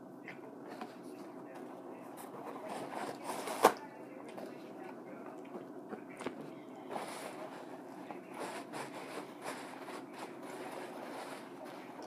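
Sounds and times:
crackling and rustling: 0.1s - 12.0s.

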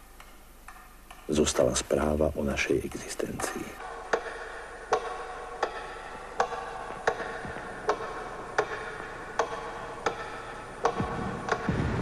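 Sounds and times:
low rumble: 11.0s - 12.0s.

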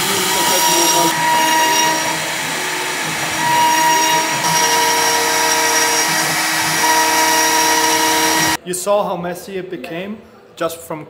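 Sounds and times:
bit rasping through wood: 0.0s - 8.6s
router spindle high whine: 0.0s - 8.6s.

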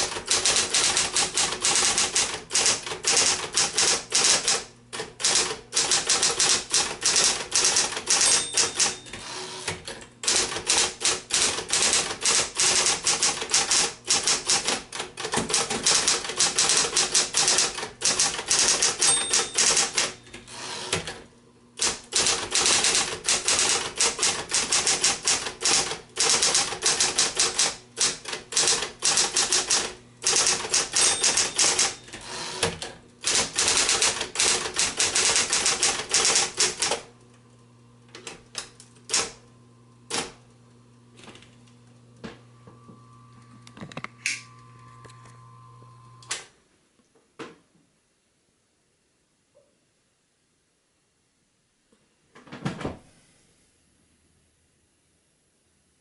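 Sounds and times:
typewriter key strikes: 0.0s - 9.2s, 10.2s - 20.2s, 21.8s - 32.0s, 32.7s - 37.0s
typewriter motor humming: 0.0s - 21.2s, 21.8s - 37.1s, 38.1s - 39.4s, 40.1s - 40.4s.

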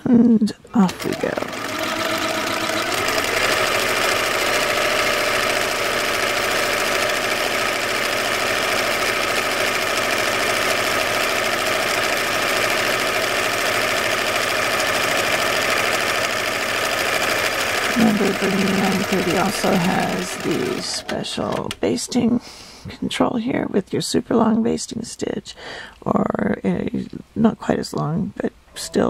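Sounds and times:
sewing machine running: 0.8s - 21.7s.

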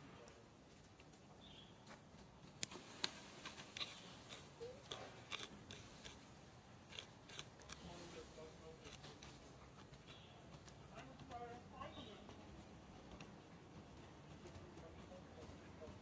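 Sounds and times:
monkey chewing and crunching food: 2.6s - 11.3s.

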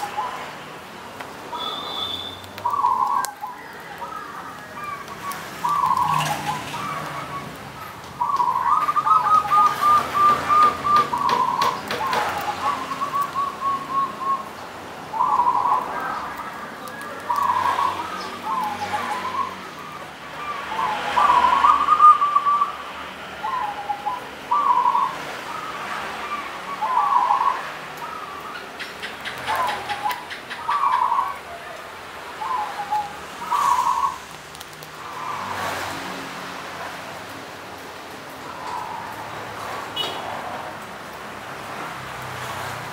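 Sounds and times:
dove cooing: 1.6s - 7.5s, 8.2s - 14.5s, 15.1s - 16.5s, 17.2s - 31.6s, 32.4s - 34.2s.

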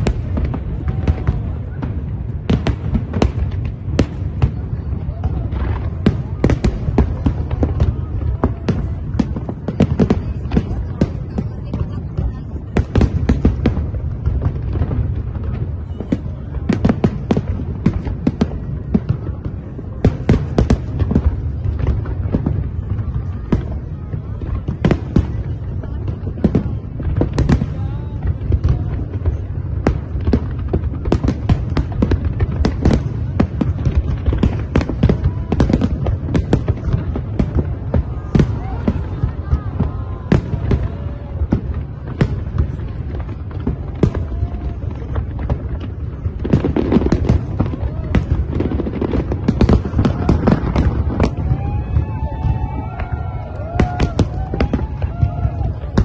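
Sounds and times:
fireworks bangs: 0.0s - 56.0s.

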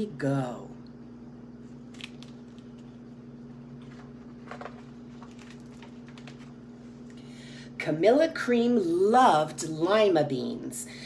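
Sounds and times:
steady low hum: 0.0s - 11.0s
book pages rustling and clicking: 1.8s - 3.0s, 3.6s - 6.6s.

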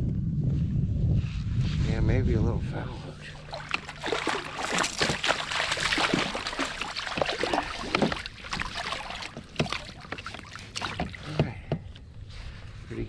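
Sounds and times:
fish splashing at water surface: 3.4s - 11.5s.

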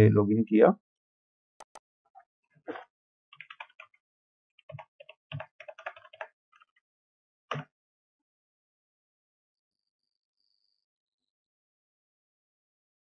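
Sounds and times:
computer keyboard typing: 3.4s - 4.0s, 4.6s - 6.7s.

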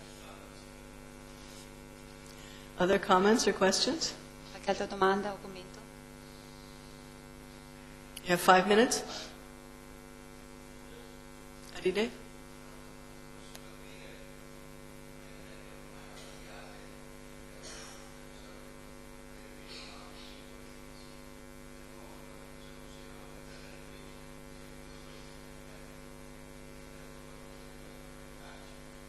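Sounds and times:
electrical mains hum: 0.0s - 29.0s.

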